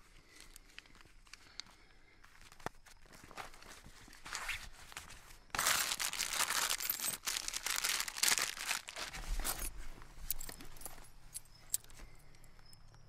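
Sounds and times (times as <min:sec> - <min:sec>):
fabric rustling and crinkling: 0:00.0 - 0:12.6
keys clicking: 0:08.9 - 0:13.0.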